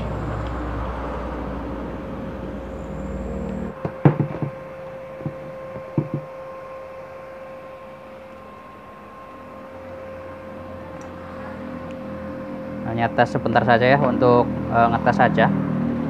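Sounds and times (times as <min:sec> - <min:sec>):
welder electrical hum with fan: 0:00.0 - 0:16.0
low rumbling handling noise: 0:01.2 - 0:06.5
metal knocks and clatters on workbench: 0:03.8 - 0:04.6, 0:05.2 - 0:06.3.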